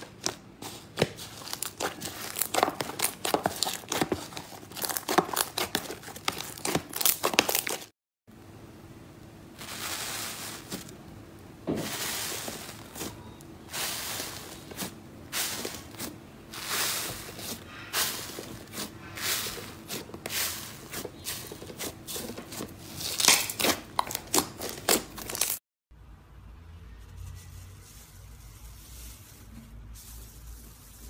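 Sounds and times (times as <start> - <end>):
fingers squeezing bubbly slime: 1.3 - 7.9.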